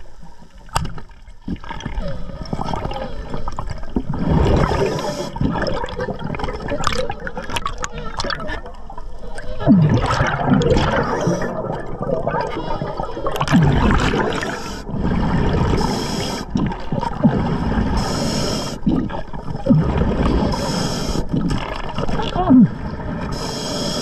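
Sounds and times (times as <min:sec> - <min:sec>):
underwater bubbles gurgling: 0:00.0 - 0:24.0
regulator hiss: 0:18.0 - 0:18.8, 0:20.5 - 0:21.3, 0:23.3 - 0:24.0.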